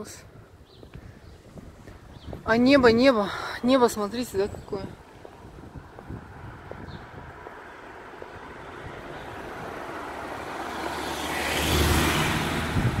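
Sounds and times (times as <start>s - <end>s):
car passing close by: 6.2s - 13.0s.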